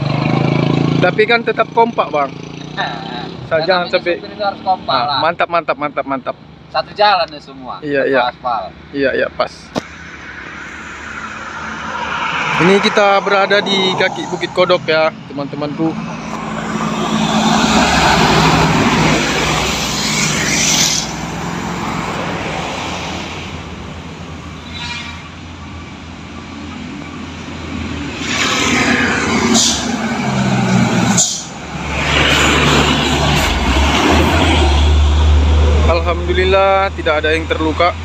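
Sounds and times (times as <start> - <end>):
trucks passing: 0.0 - 38.0
truck engine low hum: 13.9 - 24.6, 25.4 - 38.0
short hisses: 29.5 - 30.0, 31.1 - 31.6.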